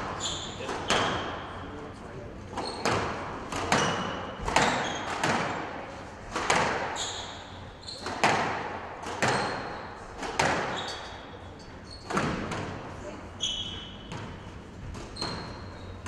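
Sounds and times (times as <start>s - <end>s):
squash ball hits echoing: 0.0s - 1.7s, 2.5s - 11.4s, 12.0s - 12.9s, 13.6s - 15.8s
short high squeaks: 0.2s - 1.2s, 2.5s - 2.9s, 6.9s - 8.2s, 9.2s - 10.0s, 10.7s - 12.2s, 13.4s - 14.1s, 15.1s - 16.0s.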